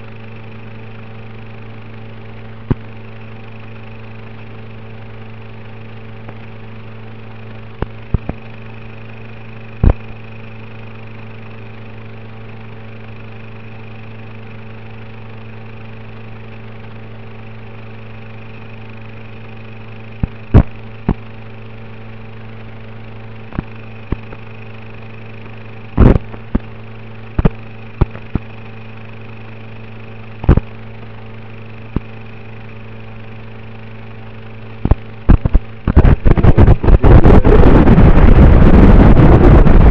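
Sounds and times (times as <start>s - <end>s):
sharp crackles and pops: 7.8s - 8.5s, 23.5s - 24.5s, 27.4s - 28.6s, 34.8s - 39.9s
electrical buzz and hiss: 9.8s - 10.2s, 20.2s - 21.3s, 25.9s - 26.7s, 27.4s - 28.6s, 30.4s - 30.8s, 34.8s - 39.9s.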